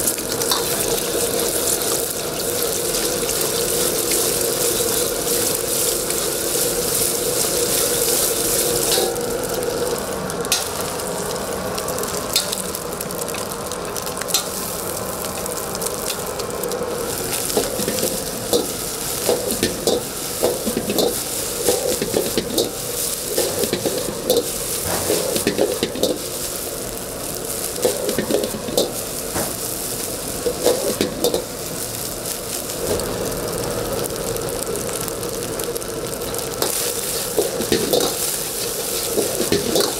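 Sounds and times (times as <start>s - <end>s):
rice sizzling in a wok: 0.0s - 39.9s
metal ladle scraping wok: 3.4s - 9.2s, 17.4s - 26.6s, 27.8s - 29.0s, 30.4s - 31.5s, 36.6s - 39.9s.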